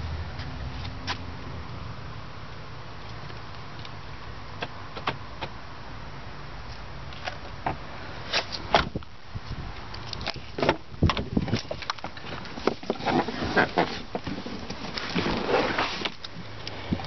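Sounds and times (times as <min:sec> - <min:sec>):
car door latch and door opening: 0:07.6 - 0:09.0
clicks and knocks of handling: 0:10.0 - 0:13.2.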